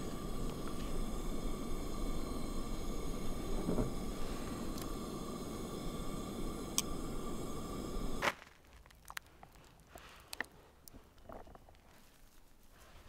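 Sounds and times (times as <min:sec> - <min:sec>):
camp stove burner hissing: 0:00.0 - 0:08.4.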